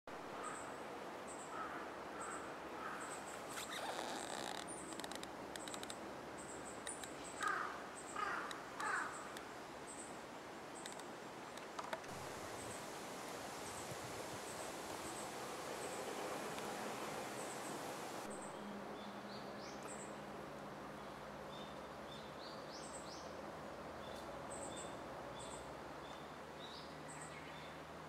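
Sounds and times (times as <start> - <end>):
small clicks: 6.8 - 7.5, 10.8 - 12.1
wind noise on microphone: 12.1 - 18.3.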